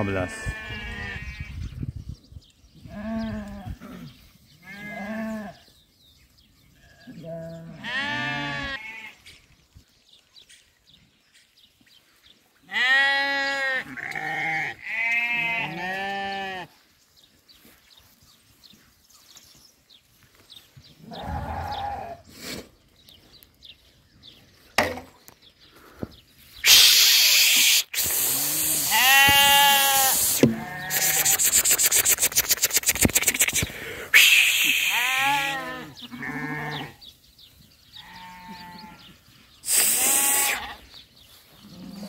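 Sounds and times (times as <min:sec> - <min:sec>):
lambs bleating: 0:00.3 - 0:01.5, 0:04.6 - 0:05.6, 0:06.8 - 0:09.2, 0:12.7 - 0:16.7, 0:21.0 - 0:22.2, 0:28.3 - 0:31.9, 0:34.2 - 0:37.0, 0:38.0 - 0:39.0, 0:39.7 - 0:40.9
rushing noise on microphone: 0:26.6 - 0:35.2.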